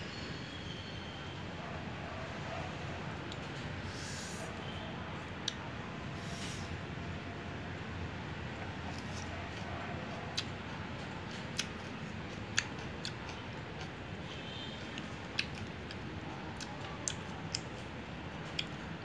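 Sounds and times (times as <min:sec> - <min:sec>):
low background hum: 0:00.0 - 0:19.0
person chewing crunchy food: 0:11.3 - 0:14.0, 0:14.9 - 0:17.8.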